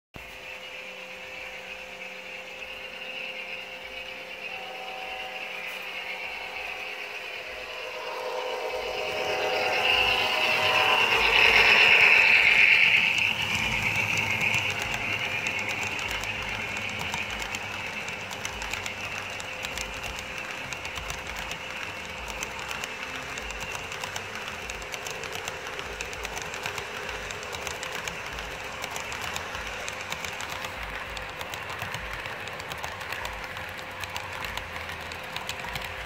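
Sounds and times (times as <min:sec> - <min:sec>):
model train running on track: 0:00.2 - 0:36.0.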